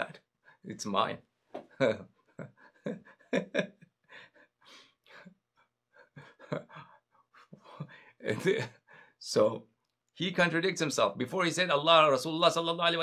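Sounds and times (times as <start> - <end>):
man's soft breathy voice: 4.0 - 9.3.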